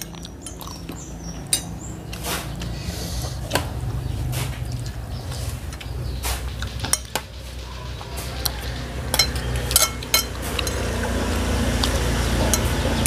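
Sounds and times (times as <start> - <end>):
steady low rumble: 0.0 - 13.0
spoons clinking on ceramic plates: 9.1 - 11.1.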